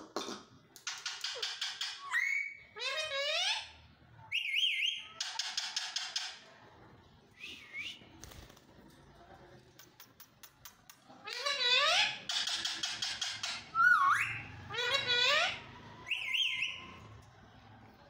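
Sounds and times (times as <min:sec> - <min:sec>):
parakeets screeching and whistling: 0:01.1 - 0:03.8, 0:11.4 - 0:17.1.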